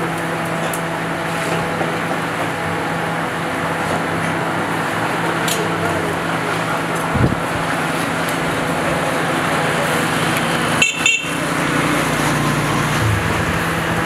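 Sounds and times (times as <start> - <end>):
loud steady background noise: 0.0 - 14.0
low knock: 13.0 - 14.0.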